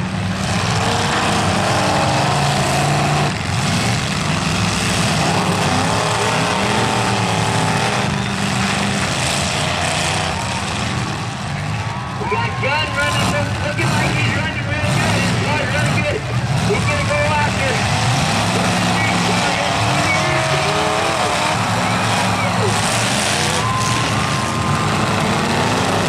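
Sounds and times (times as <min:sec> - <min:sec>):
car engines revving: 0:00.0 - 0:26.0
cars ramming: 0:00.0 - 0:26.0
voices: 0:05.7 - 0:26.0.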